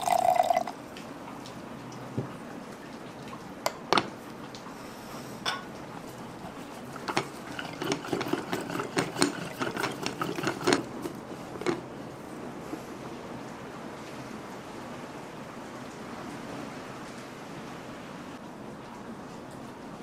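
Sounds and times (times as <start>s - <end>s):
wooden stick clattering in pot: 7.0s - 11.8s.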